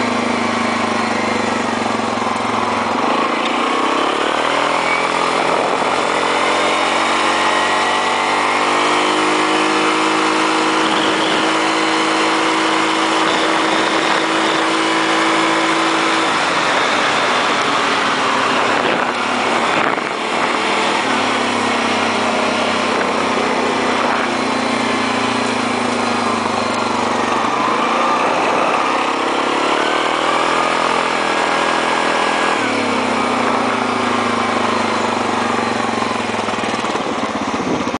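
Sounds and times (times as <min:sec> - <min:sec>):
quad bike engine running: 0:00.0 - 0:38.0
wind noise: 0:04.3 - 0:29.2, 0:35.6 - 0:38.0.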